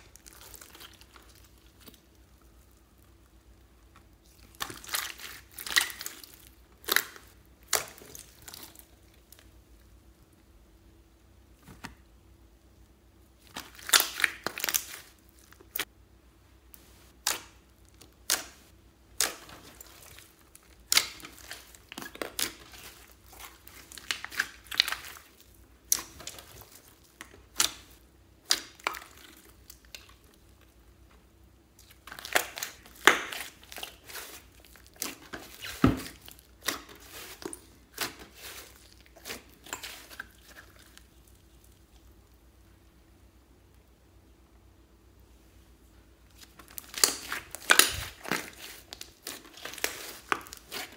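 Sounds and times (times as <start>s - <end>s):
slime popping and crackling: 0.0s - 9.5s, 13.4s - 15.9s, 17.2s - 30.4s, 31.7s - 42.2s, 46.3s - 50.9s.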